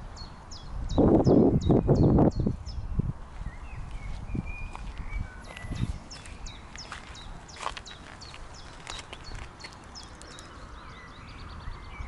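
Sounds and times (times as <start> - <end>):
wind rumble on microphone: 0.0 - 12.0
footsteps on dirt track: 3.2 - 10.1.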